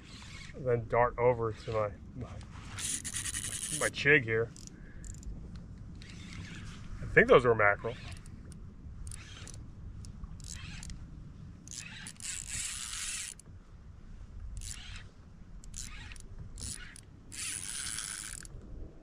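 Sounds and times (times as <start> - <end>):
fishing reel gears whirring: 0.0 - 0.6, 2.6 - 5.4, 6.0 - 6.9, 7.8 - 13.5, 14.5 - 18.6
steady low rumble: 0.0 - 19.0.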